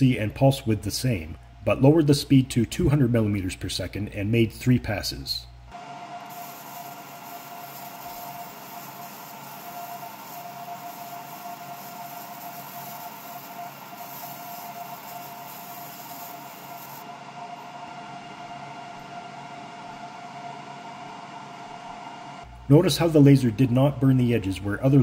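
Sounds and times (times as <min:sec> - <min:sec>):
laser engraver whirring hum: 0:05.7 - 0:23.2.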